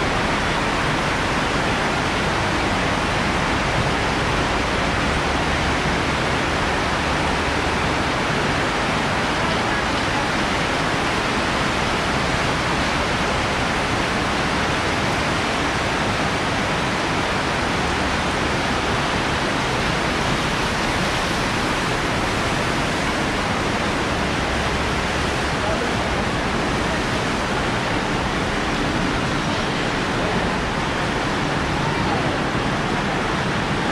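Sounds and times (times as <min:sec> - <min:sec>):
heavy rain on roof: 0:00.0 - 0:33.9.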